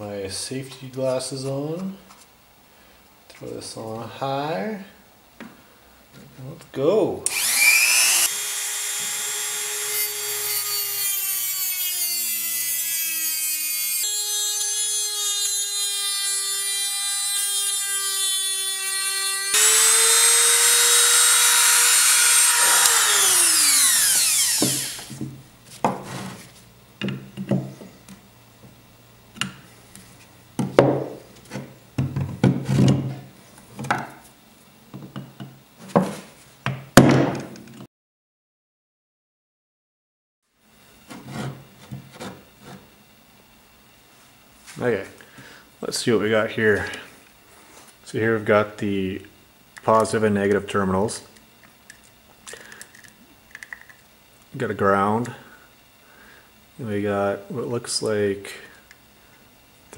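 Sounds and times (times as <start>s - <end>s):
rotary tool grinding metal: 7.3s - 25.2s.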